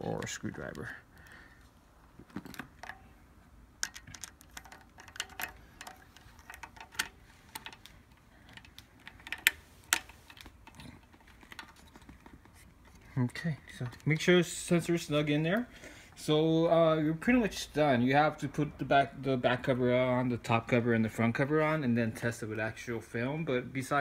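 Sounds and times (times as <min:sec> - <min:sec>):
screwdriver clicking and scraping: 0:03.8 - 0:13.0.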